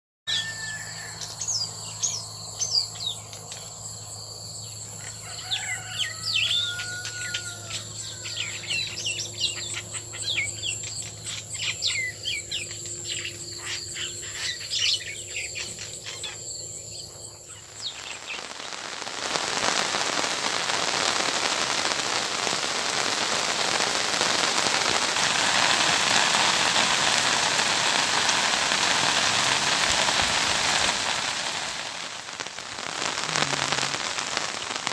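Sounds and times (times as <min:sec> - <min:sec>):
small birds chirping: 0:01.2 - 0:24.9
heavy rain on puddles: 0:17.7 - 0:34.9.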